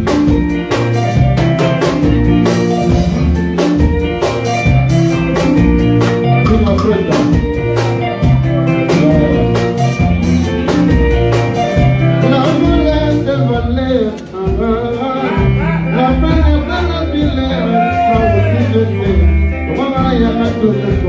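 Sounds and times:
bass notes: 0.0 - 21.0
drum kit: 0.0 - 21.0
electric guitar: 0.0 - 21.0
man singing: 6.3 - 7.5, 8.6 - 9.9, 12.0 - 21.0.

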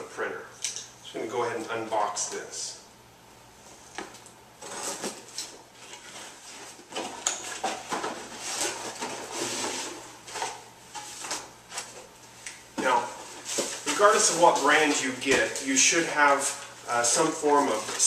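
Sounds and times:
packaging rustling and scraping: 4.6 - 12.1, 12.8 - 18.0.

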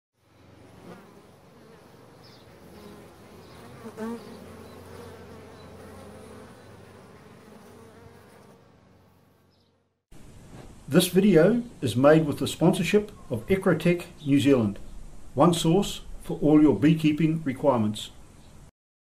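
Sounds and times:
bees buzzing: 0.2 - 10.0.

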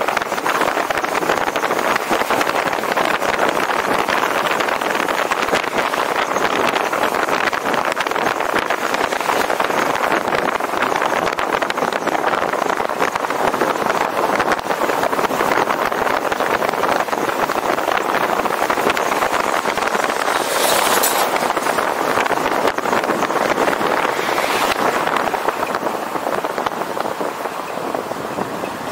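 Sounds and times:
rushing wind: 0.0 - 28.9
vehicle road noise: 0.0 - 28.9.

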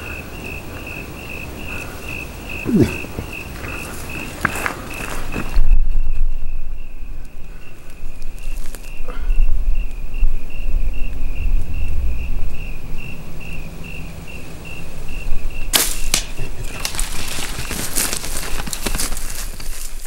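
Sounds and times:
cricket chirping: 0.0 - 20.0
sharp snaps: 15.7 - 17.0
loud crackling and rustling: 15.7 - 20.0.

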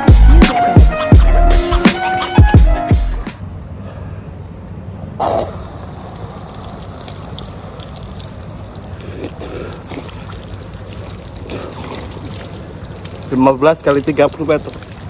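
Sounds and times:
pool water splashing: 5.2 - 15.0.

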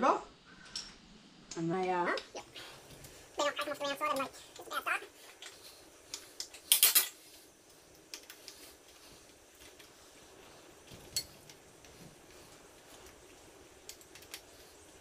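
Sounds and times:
metal tool and bike parts clinking: 6.4 - 7.2.

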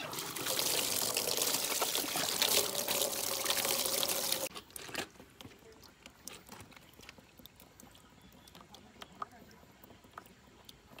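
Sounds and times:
water splashing into plastic basin: 0.0 - 4.5.

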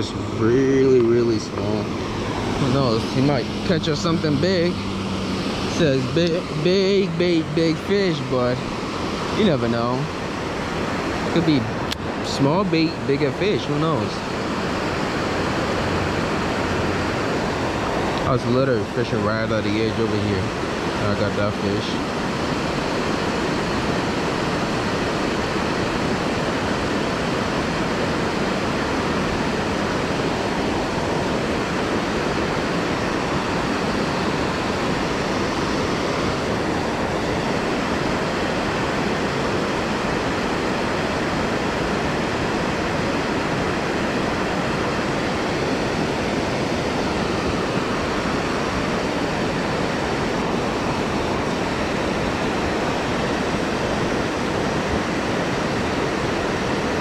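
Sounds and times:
water rushing over dam: 0.0 - 57.0.

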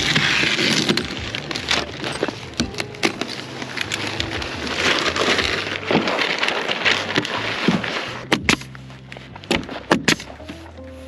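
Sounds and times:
roofing underlayment rustling: 0.0 - 11.0.

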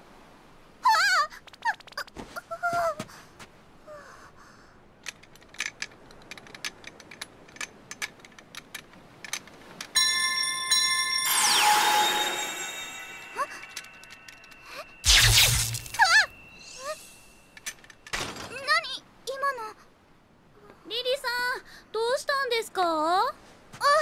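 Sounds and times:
bright chime-like tone: 10.0 - 17.6.

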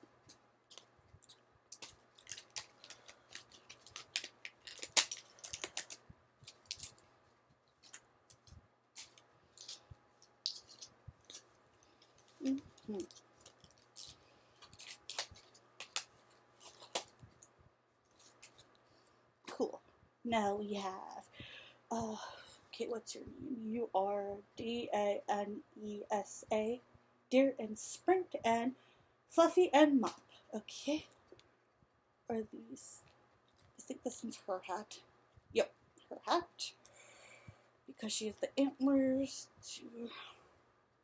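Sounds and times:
packaging crinkling: 0.7 - 18.8.

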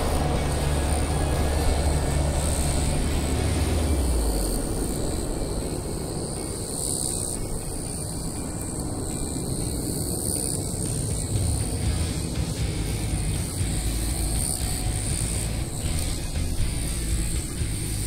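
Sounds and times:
jet engine rumble: 0.0 - 18.0.

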